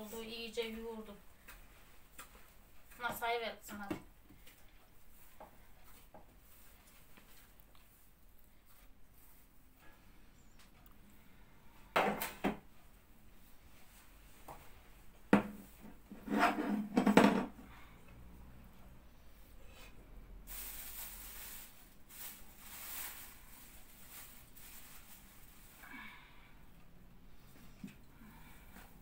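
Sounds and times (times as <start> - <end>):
soft rustling hiss: 0.0 - 11.9, 18.9 - 29.0
bowl knocking and scraping: 15.4 - 17.6.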